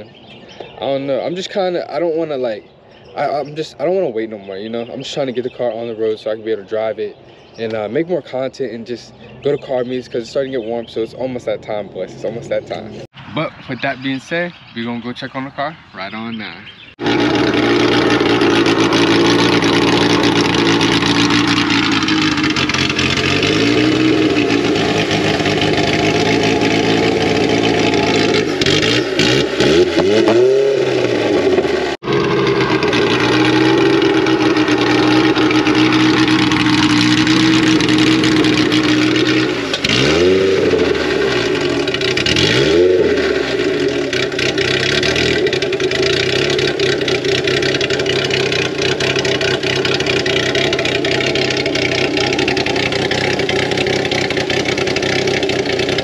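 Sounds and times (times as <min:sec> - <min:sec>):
car engine revving: 0:17.0 - 0:56.0.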